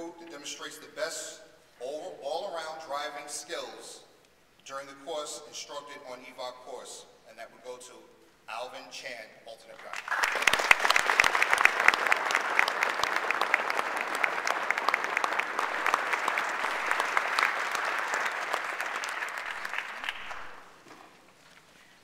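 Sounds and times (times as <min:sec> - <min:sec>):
audience applauding: 0:09.8 - 0:20.8.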